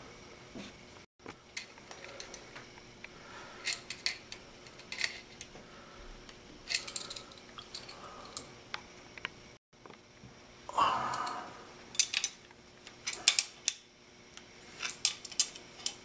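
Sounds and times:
metallic clicks and clinks: 6.7s - 8.5s, 14.8s - 16.0s.

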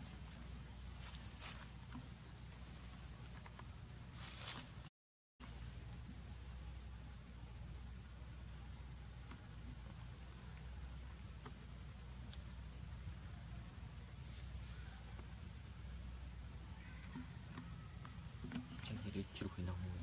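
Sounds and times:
high-pitched insect drone: 12.0s - 20.0s.

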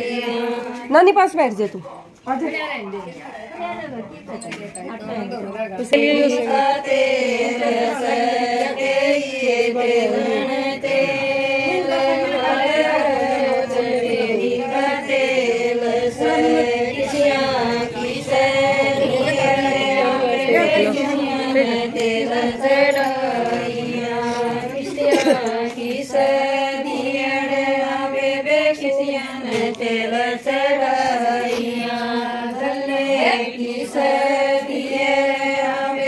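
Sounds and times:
women singing folk song: 0.0s - 1.5s, 3.3s - 36.0s.

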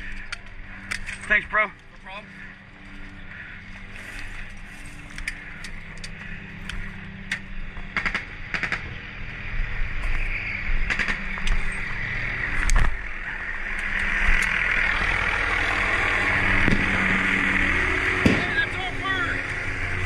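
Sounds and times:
engine hum: 0.0s - 20.0s
airsoft gunfire snaps: 7.9s - 8.9s, 10.9s - 11.5s, 18.2s - 18.5s.

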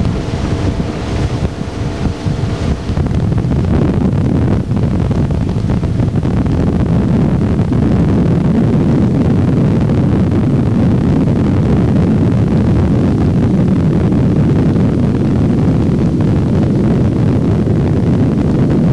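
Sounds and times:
churning wake: 0.0s - 18.9s
motorboat engine rumble: 0.0s - 18.9s
wind on microphone: 0.0s - 18.9s.

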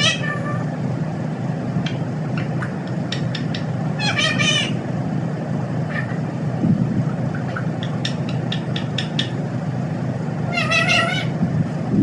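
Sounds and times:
parakeet chirps: 0.0s - 0.6s, 1.8s - 4.8s, 7.3s - 9.4s, 10.5s - 11.4s
parakeet squawk: 0.0s - 0.7s, 1.9s - 4.8s, 5.9s - 6.2s, 7.3s - 9.4s, 10.5s - 11.4s.

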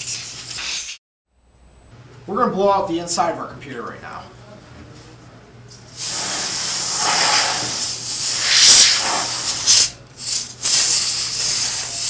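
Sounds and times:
compressed air spraying hiss: 0.0s - 1.0s, 5.8s - 12.0s.

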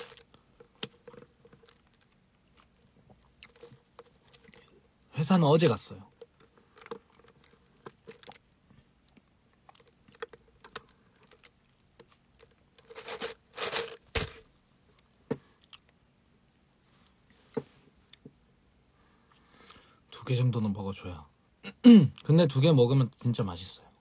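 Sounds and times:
plastic cup clicking and rustling: 0.0s - 4.6s, 6.1s - 8.4s, 9.8s - 14.4s.

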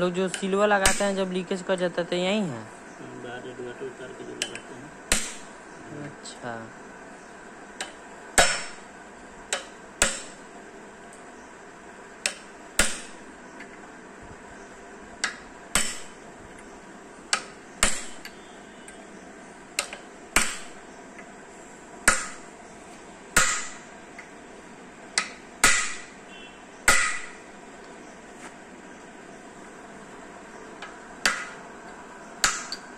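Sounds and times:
hammer tapping on metal: 0.3s - 1.2s, 4.4s - 5.5s, 7.8s - 8.8s, 9.5s - 10.4s, 12.2s - 13.8s, 15.2s - 16.7s, 17.3s - 19.0s, 19.8s - 21.3s, 22.0s - 22.5s, 23.4s - 24.3s, 25.2s - 26.2s, 26.8s - 27.4s, 30.8s - 31.6s, 32.4s - 32.9s.

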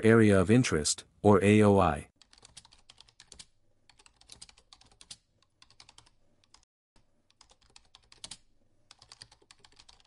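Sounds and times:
typing on a keyboard: 2.2s - 6.7s, 7.3s - 10.0s.

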